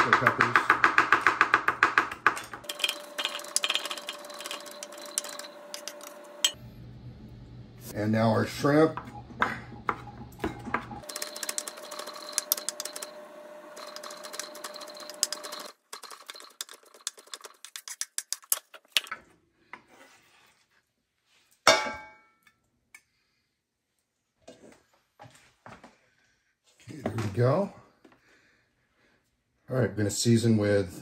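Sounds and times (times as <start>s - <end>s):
knife chopping on wooden board: 0.0s - 2.6s.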